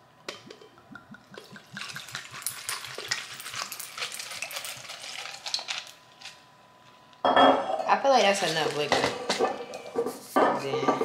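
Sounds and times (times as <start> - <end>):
liquid pouring over ice: 1.0 - 6.0.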